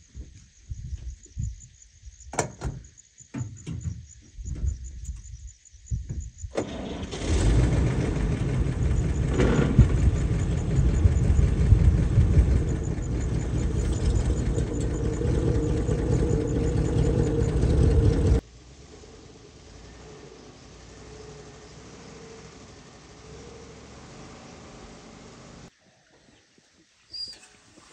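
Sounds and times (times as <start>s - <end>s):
truck engine idling: 6.7s - 18.4s.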